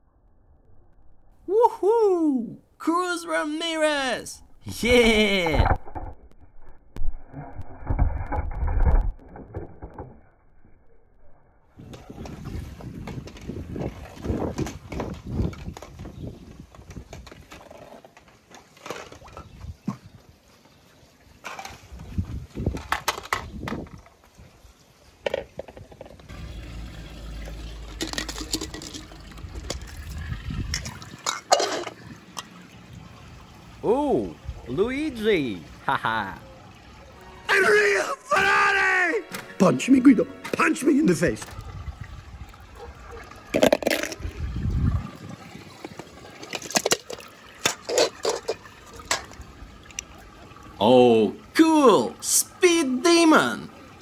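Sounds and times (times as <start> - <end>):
pool water splashing: 26.2 - 54.0
low steady rumble: 26.3 - 31.1
toy car splashing in water: 26.3 - 32.1, 43.4 - 44.4, 45.6 - 50.1.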